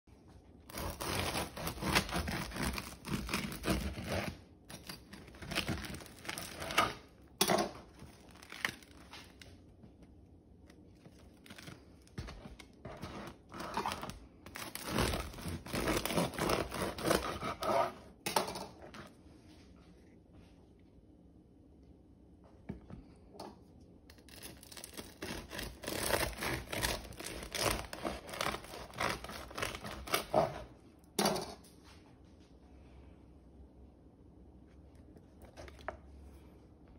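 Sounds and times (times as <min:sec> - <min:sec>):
bread knife sawing crusty bread: 0:00.7 - 0:06.9, 0:12.8 - 0:18.1, 0:24.8 - 0:30.7.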